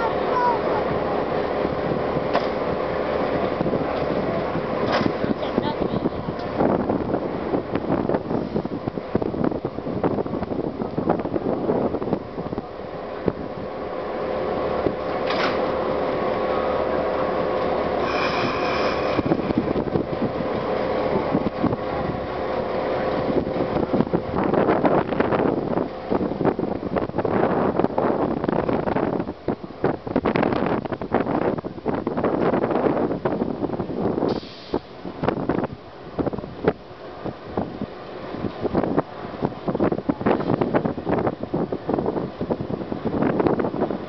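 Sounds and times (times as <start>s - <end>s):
diesel locomotive running: 0.0s - 44.0s
wind buffeting microphone: 0.0s - 44.0s
short hiss: 34.3s - 34.9s.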